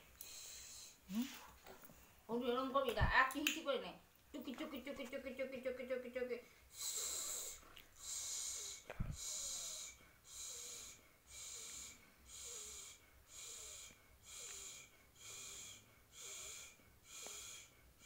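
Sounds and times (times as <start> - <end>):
woman hissing: 6.8 - 12.8.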